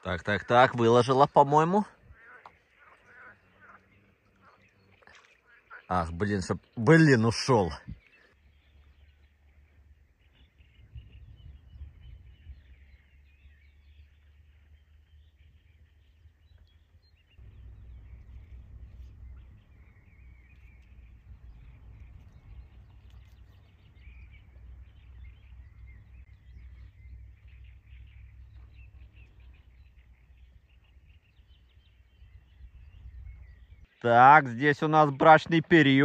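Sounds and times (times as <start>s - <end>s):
small birds chirping: 0.0s - 36.0s
low rumble: 17.3s - 33.8s.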